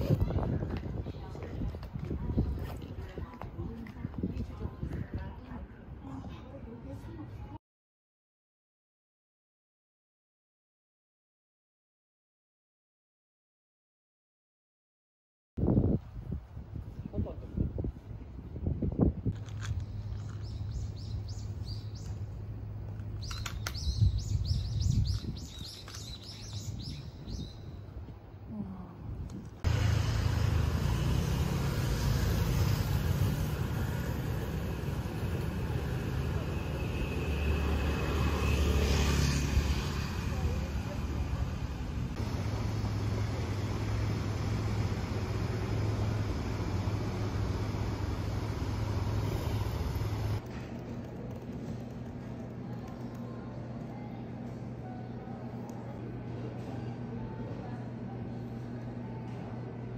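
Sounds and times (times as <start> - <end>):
small birds chirping: 19.8 - 22.4, 23.1 - 27.8
car traffic rumble: 29.4 - 53.2
traffic hiss: 29.6 - 50.4
steady low hum: 40.6 - 59.9.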